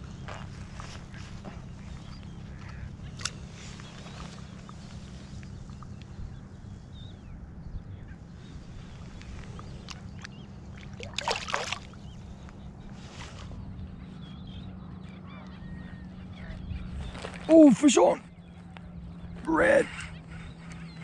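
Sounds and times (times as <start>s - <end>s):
fish splashing in water: 10.2s - 12.0s.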